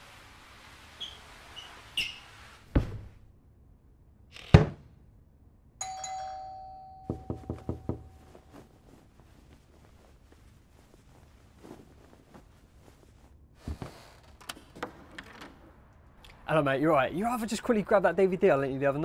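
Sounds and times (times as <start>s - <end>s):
doorbell chime: 5.8s - 8.2s
knocking on door: 7.1s - 8.2s
heavy thumps: 7.1s - 9.3s.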